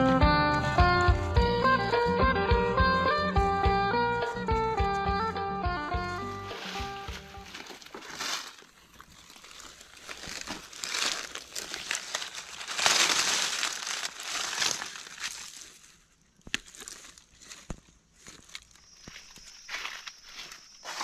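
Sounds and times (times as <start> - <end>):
dry leaves crackling and rustling: 6.1 - 21.0.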